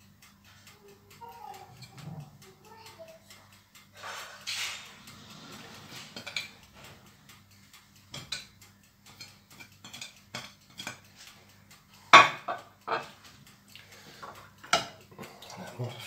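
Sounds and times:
utensils clattering on counter: 0:12.1 - 0:13.1.

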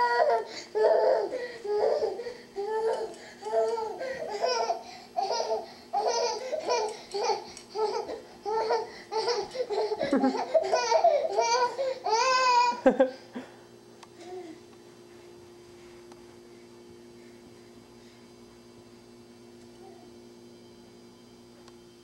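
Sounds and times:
toddler laughing and babbling: 0:00.0 - 0:12.8.

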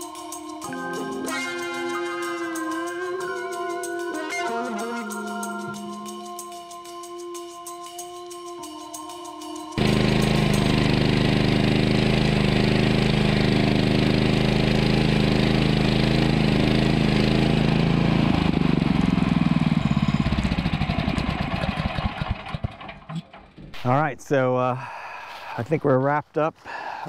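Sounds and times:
sawmill engine running: 0:09.7 - 0:23.9.

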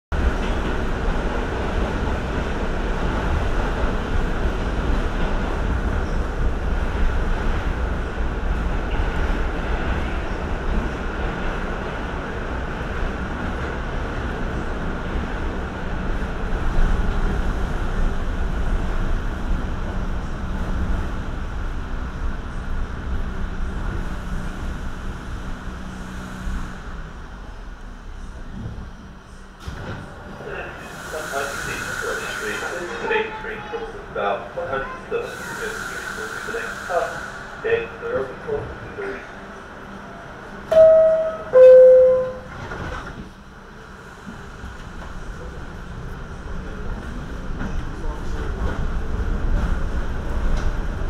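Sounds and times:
subway train rumbling in tunnel: 0:00.0 - 0:51.0.

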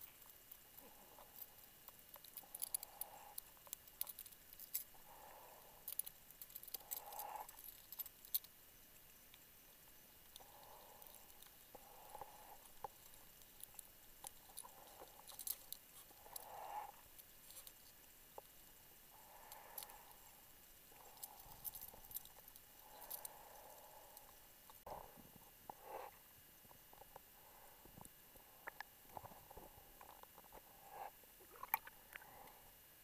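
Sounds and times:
underwater clicks and crackles: 0:00.0 - 0:08.6, 0:25.7 - 0:32.5.

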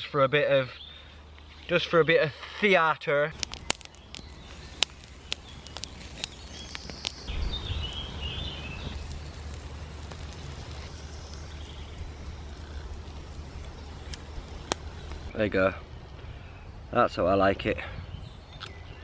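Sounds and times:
wood fire crackling and popping: 0:03.3 - 0:15.4.

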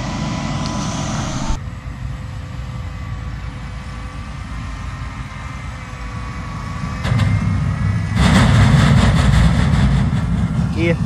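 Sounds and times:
loud rush of noise: 0:00.0 - 0:01.6, 0:07.1 - 0:11.0
low engine rumble: 0:00.0 - 0:11.0.

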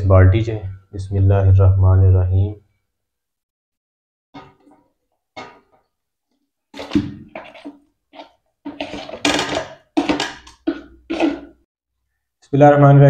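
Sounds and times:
plastic tub scraping a steel bucket: 0:06.8 - 0:11.7.

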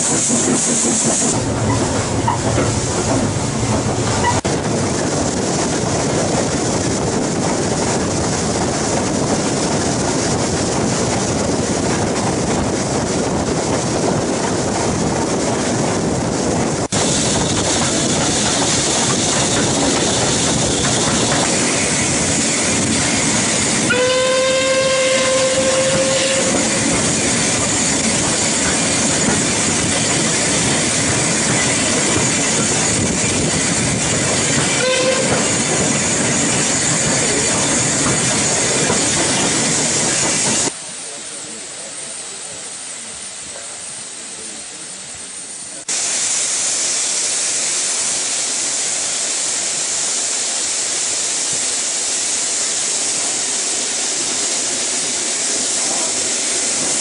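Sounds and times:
train wheels on track: 0:00.0 - 0:57.0
steam whistle: 0:23.8 - 0:26.8, 0:34.7 - 0:35.5.

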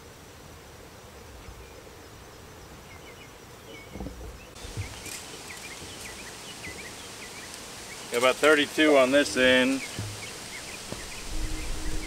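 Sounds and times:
small birds chirping: 0:01.1 - 0:12.0
soft low thumps: 0:10.0 - 0:12.0.

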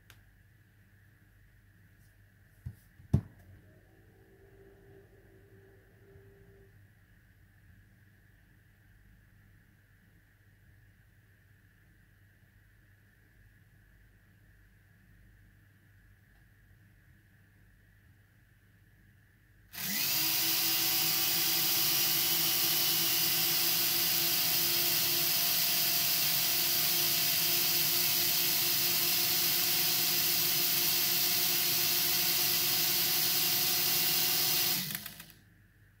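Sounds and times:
quadcopter propellers whirring: 0:19.8 - 0:30.3.

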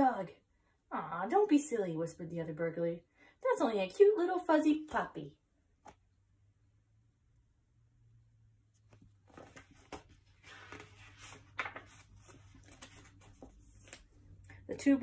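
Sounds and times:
book pages rustling: 0:08.7 - 0:14.6.

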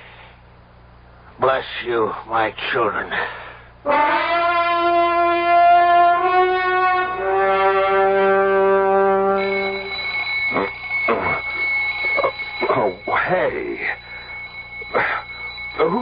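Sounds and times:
brass chords: 0:03.8 - 0:11.5
alarm clock ringing: 0:03.9 - 0:16.0.

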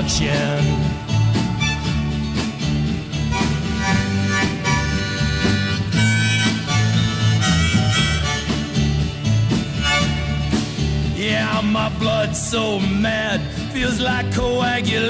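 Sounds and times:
bass: 0:00.0 - 0:15.0
steady drum beat: 0:00.0 - 0:15.0
strummed guitar: 0:00.0 - 0:15.0
harmonica playing: 0:01.2 - 0:10.8.

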